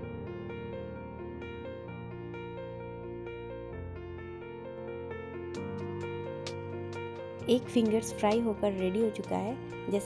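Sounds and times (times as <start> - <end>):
keyboard background music: 0.0 - 10.0.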